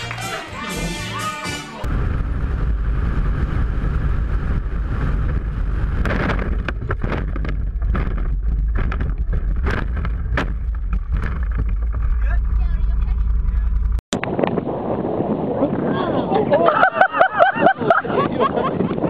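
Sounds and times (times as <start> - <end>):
utility vehicle engine running: 1.9 - 14.0
wind buffeting microphone: 1.9 - 19.0
vehicle knocks and rattles: 6.0 - 14.0.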